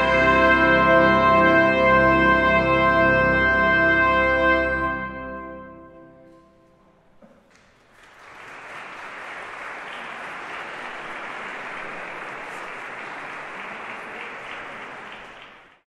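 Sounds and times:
audience applauding: 0:07.2 - 0:15.9.

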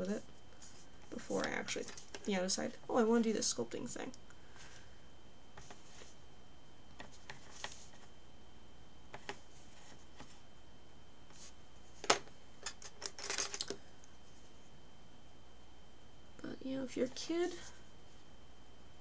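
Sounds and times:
tools rattling: 0:12.0 - 0:13.8.

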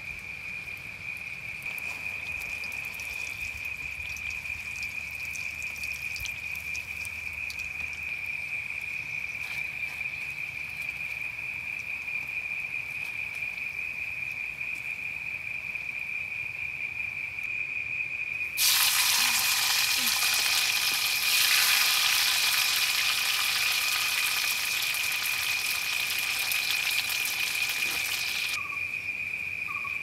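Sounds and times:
insect trilling: 0:00.0 - 0:17.2, 0:18.5 - 0:30.0
loud frying sizzle: 0:18.6 - 0:28.6.

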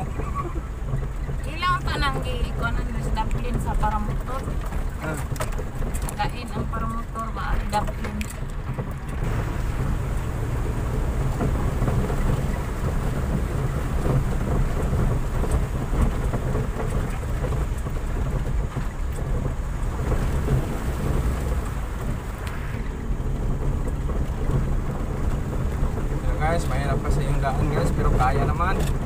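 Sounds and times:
tyre and suspension rumble: 0:00.0 - 0:29.0.

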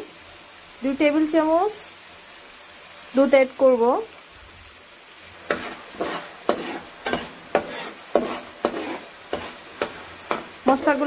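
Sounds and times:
frying sizzle: 0:00.0 - 0:11.0
metal spoon scraping a pan: 0:05.4 - 0:11.0.

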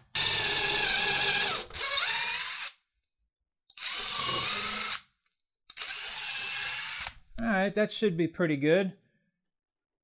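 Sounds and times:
impact driver driving a screw: 0:03.7 - 0:05.1, 0:05.7 - 0:07.2.

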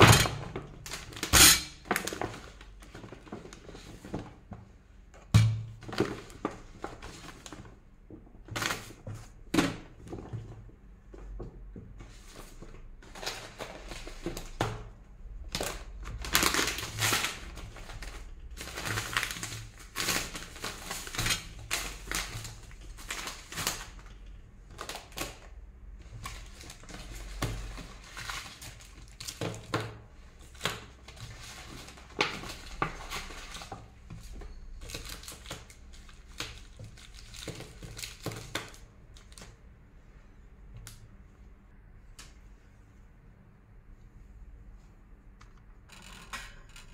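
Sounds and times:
plastic packets crinkling: 0:15.5 - 0:29.8, 0:30.4 - 0:39.6.

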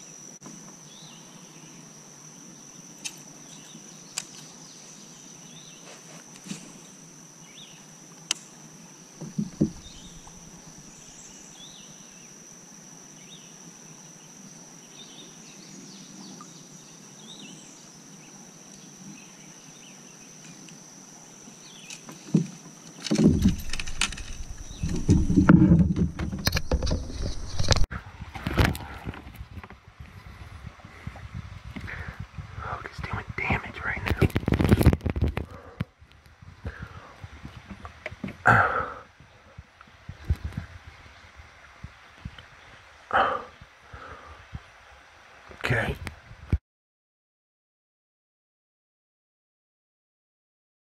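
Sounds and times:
high-pitched insect drone: 0:00.0 - 0:27.9
kayak and paddle knocking: 0:09.2 - 0:10.4, 0:22.1 - 0:27.8
faint bird chirps: 0:09.2 - 0:12.4.

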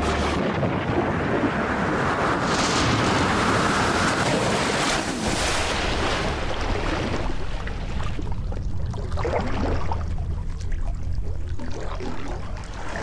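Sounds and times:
wind buffeting microphone: 0:00.0 - 0:05.4
sea water sloshing and splashing: 0:00.0 - 0:13.0.

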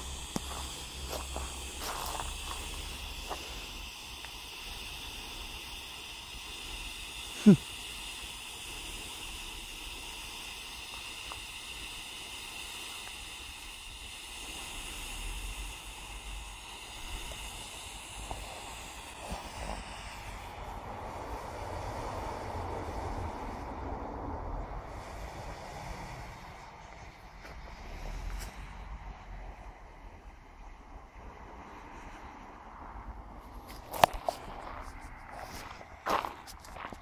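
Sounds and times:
smoke grenade hissing: 0:00.0 - 0:23.8, 0:24.4 - 0:28.9.

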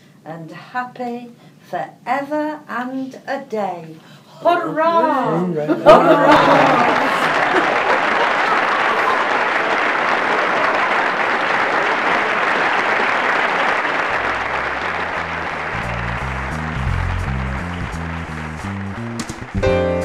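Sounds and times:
audience applauding: 0:05.9 - 0:20.0
music with stepping bass line: 0:14.8 - 0:20.0.

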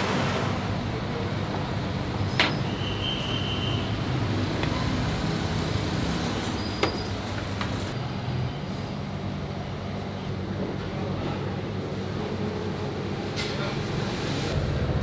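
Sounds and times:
low rumble: 0:14.6 - 0:15.0.

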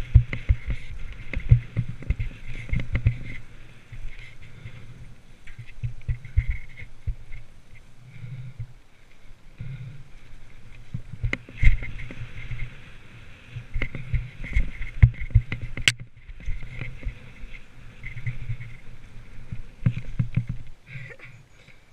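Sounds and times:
wind buffeting microphone: 0:00.0 - 0:07.8, 0:09.5 - 0:20.9
bike knocking and rattling: 0:00.0 - 0:08.8, 0:09.5 - 0:21.2.

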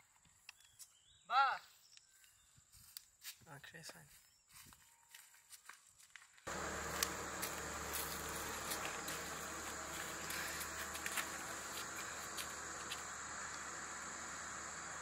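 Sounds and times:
high insect drone: 0:06.5 - 0:15.0
hiss: 0:06.5 - 0:15.0
low hum: 0:06.5 - 0:15.0.

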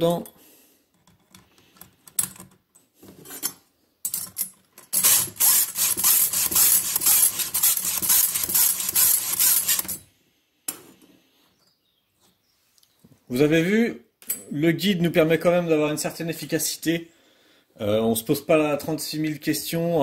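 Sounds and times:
metal clicks and scrapes: 0:03.1 - 0:10.1
file rasping on saw chain: 0:05.0 - 0:10.0.

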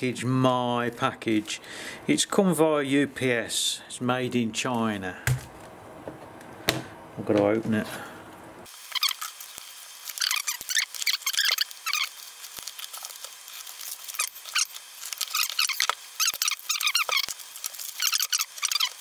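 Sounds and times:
plastic packaging crinkling: 0:08.8 - 0:19.0.

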